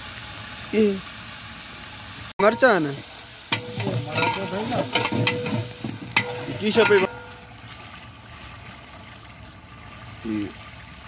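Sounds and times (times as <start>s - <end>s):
curry sizzling: 0.0s - 11.0s
ladle clinking against pot: 3.5s - 7.4s
ladle scraping pot: 3.5s - 7.5s.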